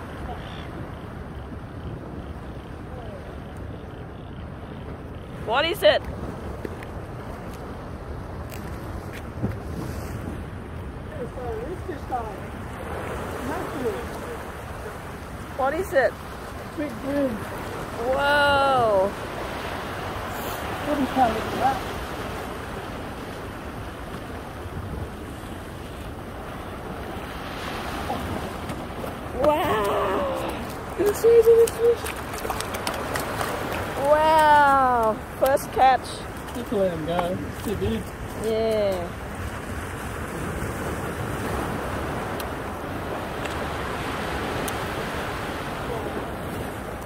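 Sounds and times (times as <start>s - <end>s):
wind rumbling on microphone: 0.0s - 47.0s
small waves lapping on rock: 11.2s - 47.0s.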